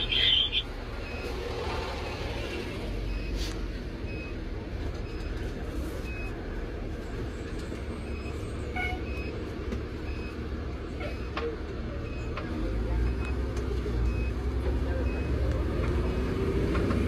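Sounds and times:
faint high beep: 0.0 - 1.2
diesel engine rumble from cab: 0.0 - 1.3, 2.8 - 17.0.

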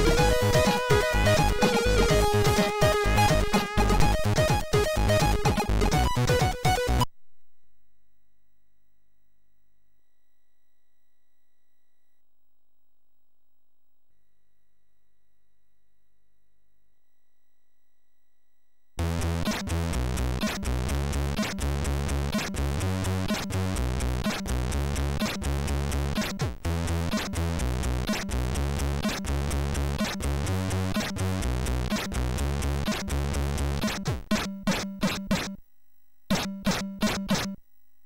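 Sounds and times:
chiptune music: 0.0 - 7.1.

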